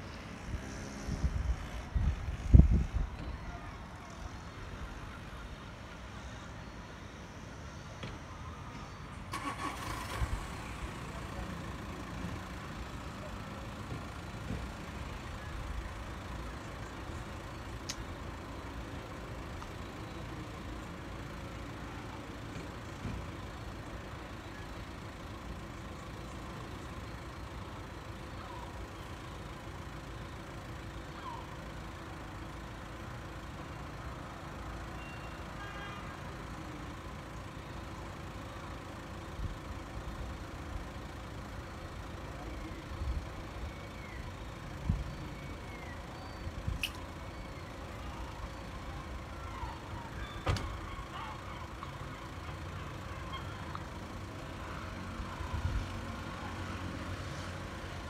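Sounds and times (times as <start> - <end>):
low city rumble: 0.0 - 58.0.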